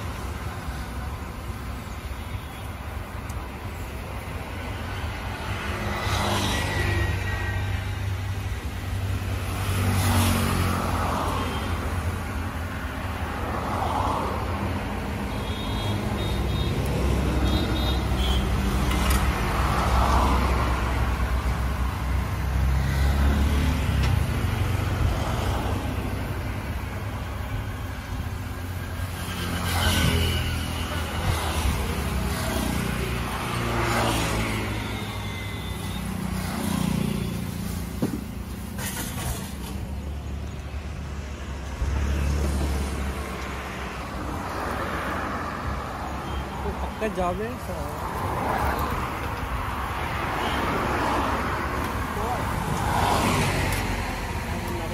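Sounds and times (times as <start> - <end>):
traffic rumble: 0.0 - 54.9
vehicles passing by: 0.0 - 54.9.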